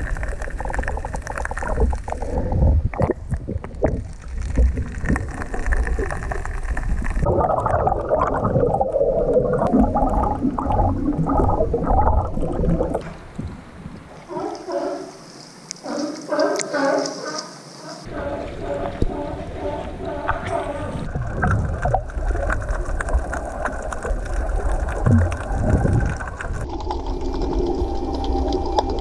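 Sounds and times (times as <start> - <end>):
bubbling: 0.0 - 14.4, 18.0 - 29.0
underwater rumble of water: 0.0 - 14.9, 18.1 - 29.0
sea lions grunting underwater: 14.2 - 29.0
sea lions barking: 14.3 - 21.1.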